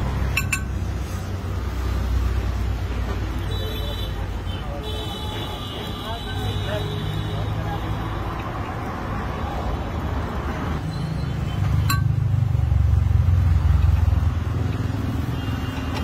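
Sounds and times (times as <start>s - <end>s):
sharp clink: 0.3s - 0.8s, 11.8s - 12.2s.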